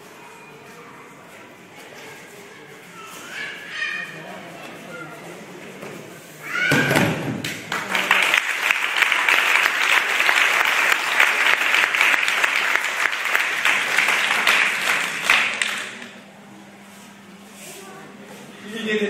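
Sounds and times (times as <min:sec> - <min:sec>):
audience applauding: 0:07.6 - 0:16.1.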